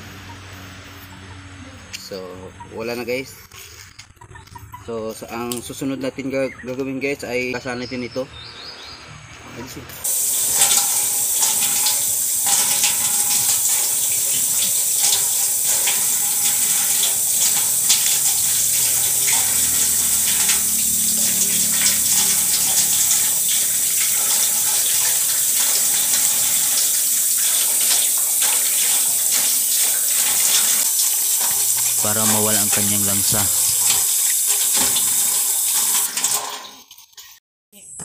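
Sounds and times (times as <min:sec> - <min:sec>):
tap water pouring into steel basin: 0:10.0 - 0:37.4
hands rubbing and rinsing: 0:10.1 - 0:36.0.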